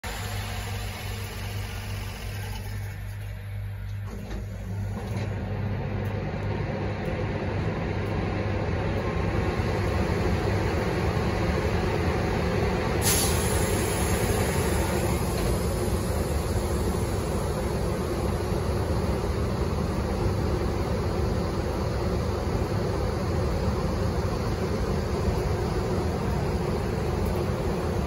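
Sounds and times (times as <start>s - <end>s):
electric locomotive hum: 0.0s - 28.0s
fan noise rushing: 0.0s - 28.0s
sharp hiss: 13.0s - 17.7s.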